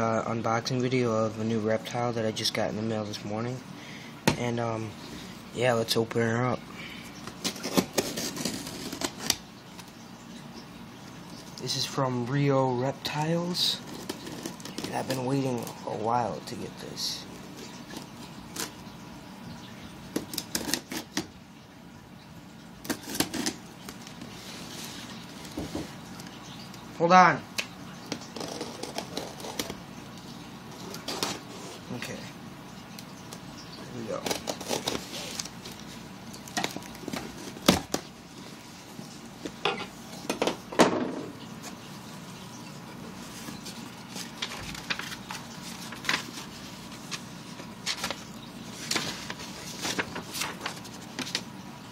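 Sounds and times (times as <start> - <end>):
fingers scratching at tape and plastic: 7.4 - 9.4, 13.8 - 15.8, 20.2 - 21.3, 22.8 - 23.6, 28.2 - 29.8, 34.2 - 38.0
knife slitting packing tape: 7.4 - 9.4, 20.2 - 21.3, 22.8 - 23.6, 34.2 - 35.5
crinkly rustles: 43.1 - 51.5.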